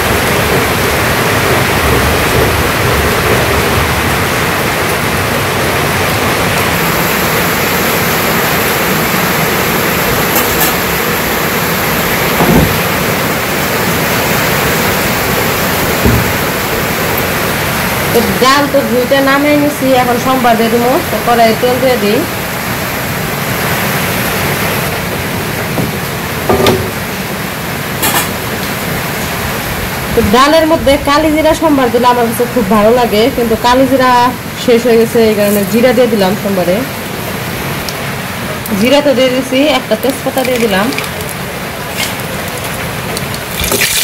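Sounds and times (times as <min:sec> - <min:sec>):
heavy rain on a tin roof: 0:00.0 - 0:44.0
short knock: 0:16.0 - 0:16.4.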